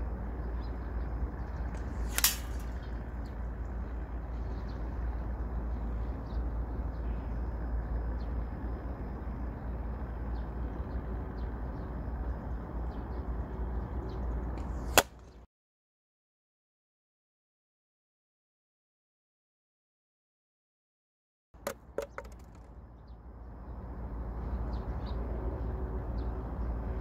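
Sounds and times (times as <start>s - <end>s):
outdoor wind: 0.0s - 15.5s, 21.6s - 27.0s
ball striking plastic bottle: 15.0s - 15.2s, 21.6s - 22.7s.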